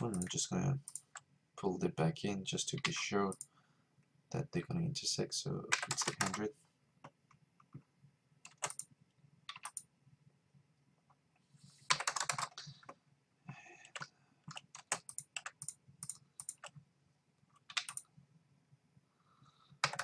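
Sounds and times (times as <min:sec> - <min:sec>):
keyboard keys clicking: 0:00.0 - 0:01.2, 0:05.7 - 0:08.9, 0:09.5 - 0:09.9, 0:11.9 - 0:13.0, 0:13.8 - 0:16.8, 0:17.6 - 0:18.1, 0:19.8 - 0:20.0.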